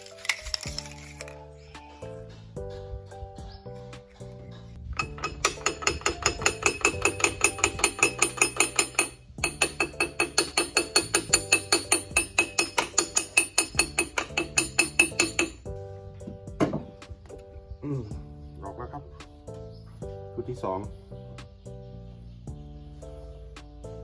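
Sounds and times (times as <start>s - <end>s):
rapid metallic tapping on pulley: 4.9s - 15.7s.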